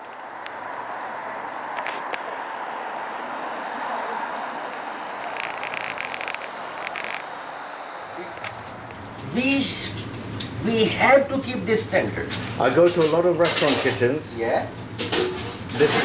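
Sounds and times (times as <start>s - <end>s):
cars driving past: 0.0s - 9.2s.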